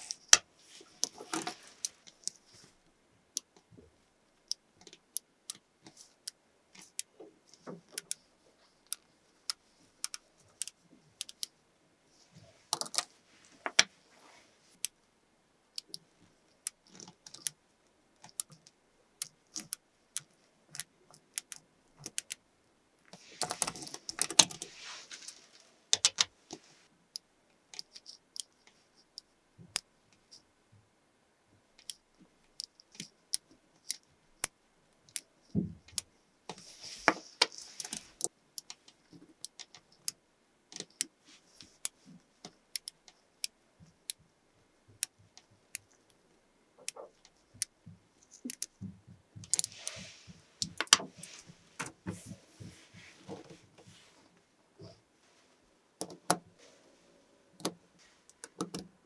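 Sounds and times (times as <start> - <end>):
magnetic balls clicking: 4.4 - 11.6, 12.7 - 13.9, 15.7 - 17.6, 18.2 - 22.4, 25.3 - 30.5, 31.8 - 44.3, 46.8 - 52.1, 57.6 - 59.0.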